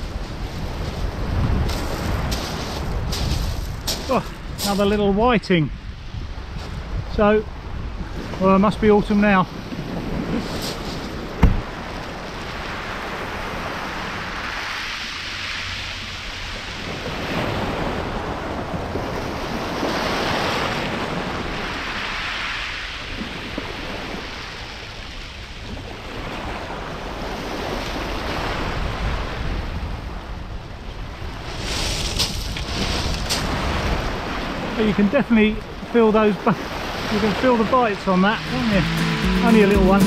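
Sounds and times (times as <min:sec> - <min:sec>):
wind on microphone: 0:00.0 - 0:05.1, 0:05.7 - 0:08.4, 0:09.5 - 0:14.6
sea waves breaking on beach: 0:00.0 - 0:40.0.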